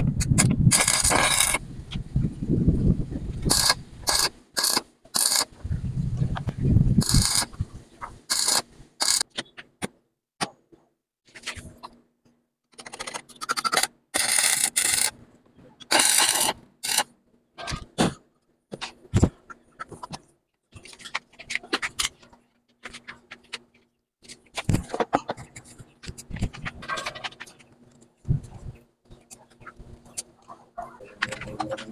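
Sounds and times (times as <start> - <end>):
welding arc crackling: 0.4 - 1.6, 3.5 - 5.5, 7.0 - 9.2, 15.9 - 17.0.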